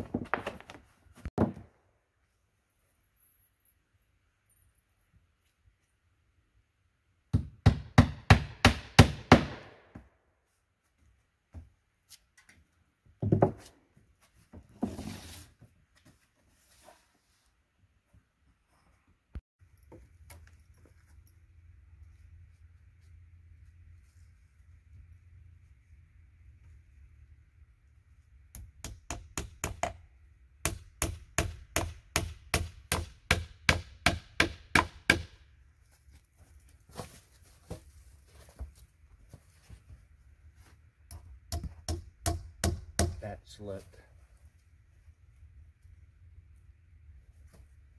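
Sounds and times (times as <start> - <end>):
hammer striking a log: 7.3 - 10.0, 28.5 - 30.0, 30.6 - 35.4, 41.1 - 43.2
hammer blows on roofing: 7.4 - 10.1.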